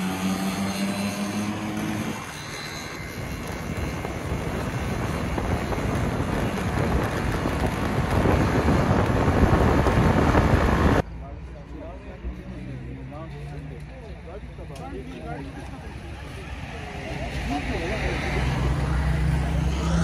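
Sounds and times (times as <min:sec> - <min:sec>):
vehicle road noise: 0:00.0 - 0:20.0
wind rushing over microphone: 0:03.0 - 0:11.0.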